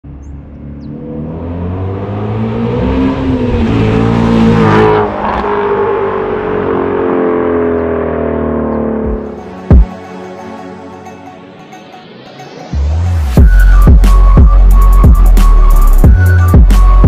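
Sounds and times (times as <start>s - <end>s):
car engine accelerating past: 0.6s - 9.4s.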